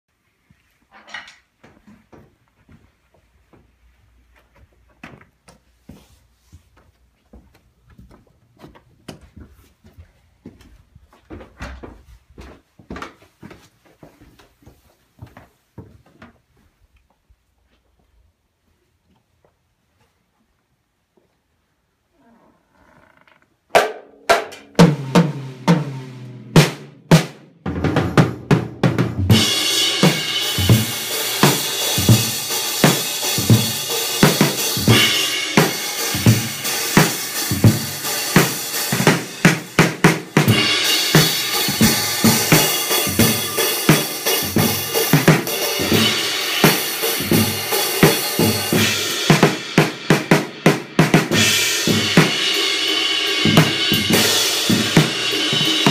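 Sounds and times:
drum kit playing: 23.7 - 55.9.

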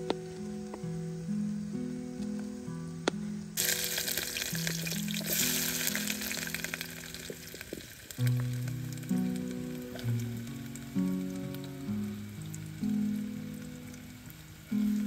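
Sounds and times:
soft background music: 0.0 - 15.0
food sizzling in a pot: 3.6 - 15.0.

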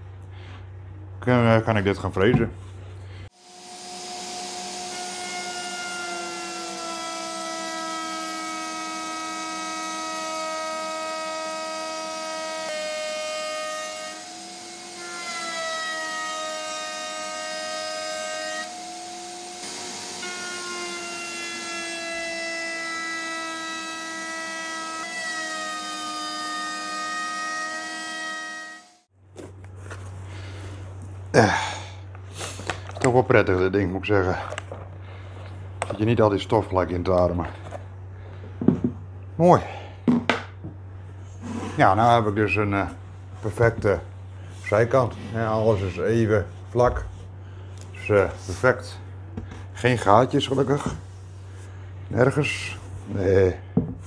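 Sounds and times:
wood router whining: 3.3 - 29.1.

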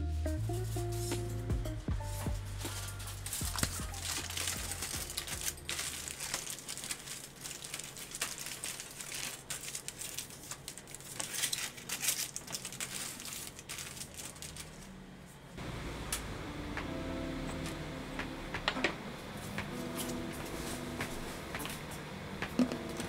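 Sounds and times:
aluminium foil crinkling: 2.3 - 15.0.

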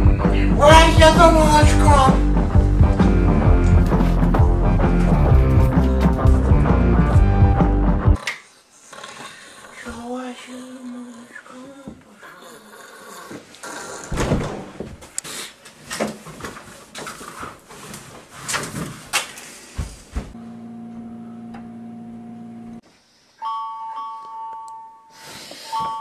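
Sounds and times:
rustling and bumping: 3.6 - 6.4
low buzzing tone: 20.4 - 22.8.

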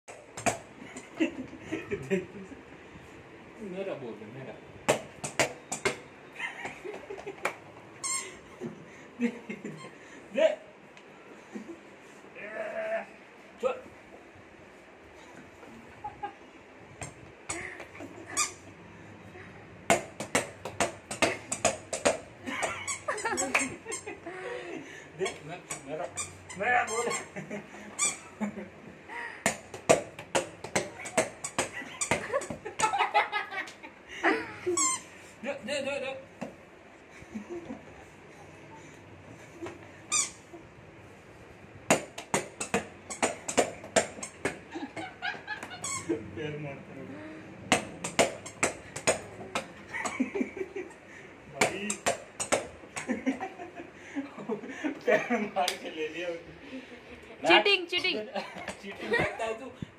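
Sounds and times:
hand claps: 19.9 - 22.2, 23.4 - 23.8, 47.7 - 49.7
sharp taps: 51.6 - 53.1.

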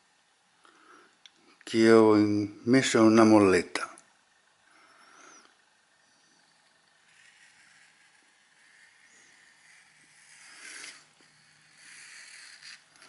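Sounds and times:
rope scratching on paper: 7.1 - 13.0.

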